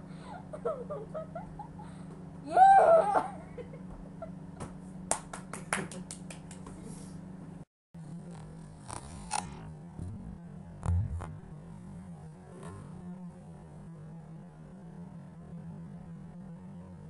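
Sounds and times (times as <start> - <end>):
low hum: 0.0 - 5.2, 6.0 - 17.0
person laughing: 0.2 - 4.4.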